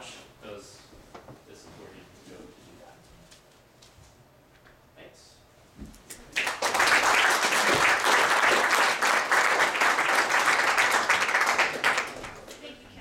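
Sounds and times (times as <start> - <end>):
audience applauding: 6.3 - 12.7.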